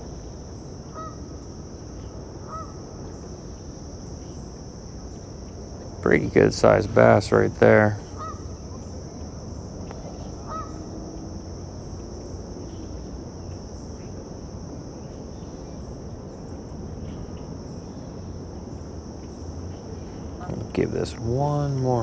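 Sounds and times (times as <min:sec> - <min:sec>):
steady high hiss: 0:00.0 - 0:22.0
faint short bird calls: 0:00.9 - 0:01.2, 0:02.4 - 0:02.8, 0:08.0 - 0:08.9, 0:09.9 - 0:10.9.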